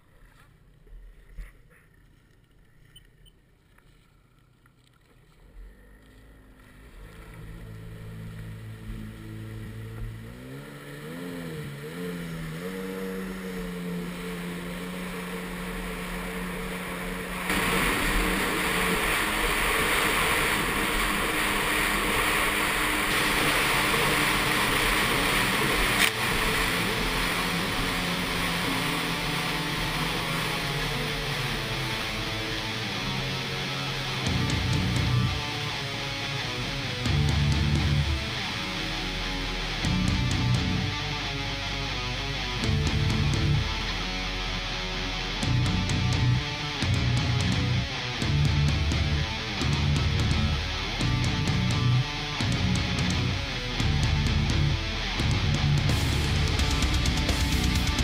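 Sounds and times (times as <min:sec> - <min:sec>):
jetski engine revving: 0:05.5 - 0:58.0
water spray rushing: 0:07.6 - 0:36.7.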